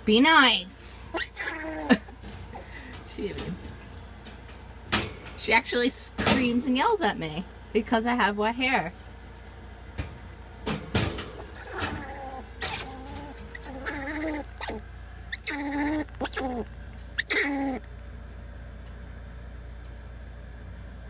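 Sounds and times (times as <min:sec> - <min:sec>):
squirrel screaming: 0:01.1 - 0:02.0, 0:11.4 - 0:17.9.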